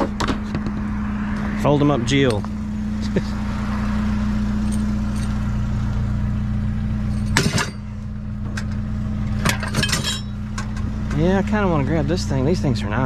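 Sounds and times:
vehicle engine idling: 0.0s - 13.0s
scrap metal knocks: 7.2s - 7.9s.

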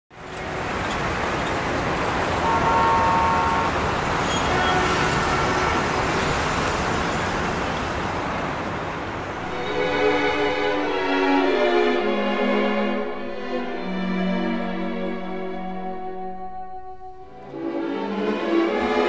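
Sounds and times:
motorway traffic rushing: 0.1s - 13.8s
vehicle horn: 2.4s - 6.2s.

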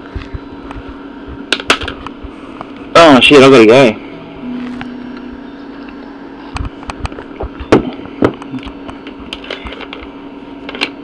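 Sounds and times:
telephone line hum: 0.0s - 11.0s.

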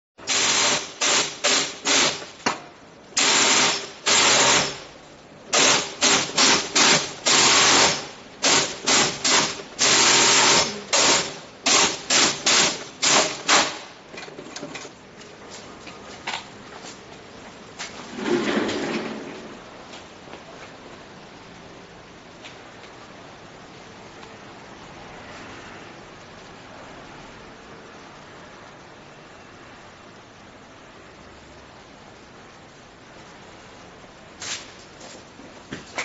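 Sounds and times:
industrial sewing machine running: 3.2s - 4.8s, 5.6s - 13.6s.

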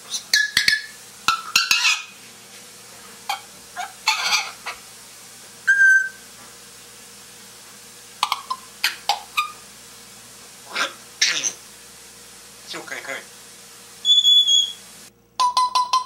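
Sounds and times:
parrot squawking and clicking: 0.1s - 2.1s, 3.3s - 4.8s, 8.2s - 9.6s
parrot whistling: 0.1s - 2.1s, 5.6s - 6.3s, 8.2s - 9.6s, 14.0s - 14.8s.

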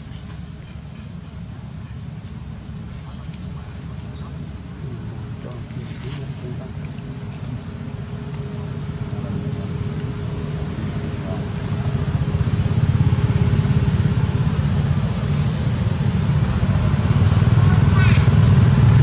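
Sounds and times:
insect chorus drone: 0.0s - 19.0s
low rumble: 8.8s - 19.0s.

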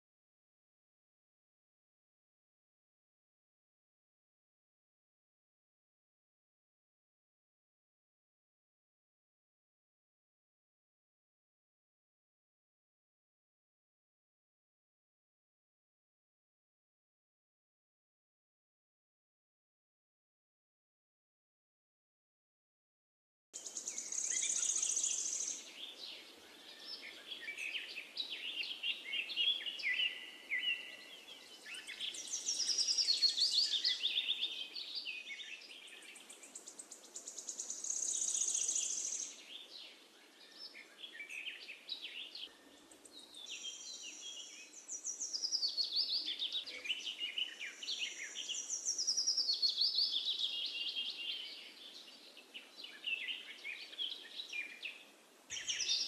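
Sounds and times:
songbirds singing: 23.6s - 56.0s.

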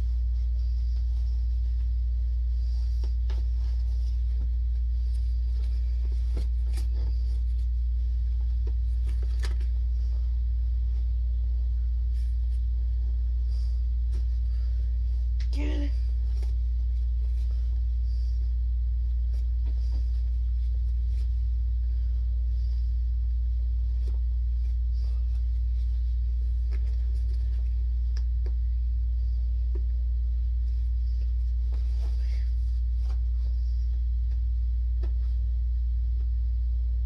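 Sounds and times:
hands rustling cardboard box: 0.0s - 11.2s, 30.6s - 35.5s
steady low hum: 0.0s - 37.0s.

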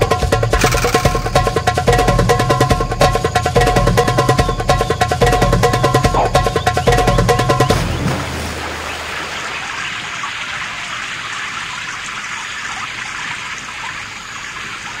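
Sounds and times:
sea water rushing: 7.4s - 12.5s
gentle surf washing: 7.7s - 14.0s.

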